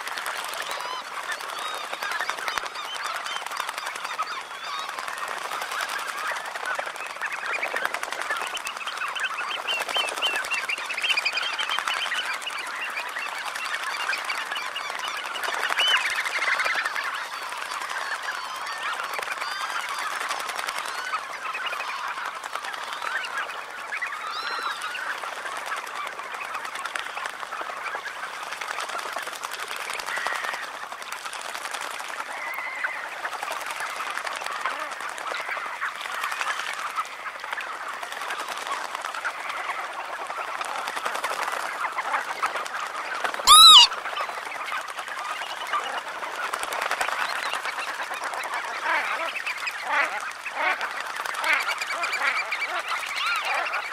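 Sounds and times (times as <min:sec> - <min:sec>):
flock of birds chattering: 0:00.0 - 0:53.9
loud close bird call: 0:43.5 - 0:44.0.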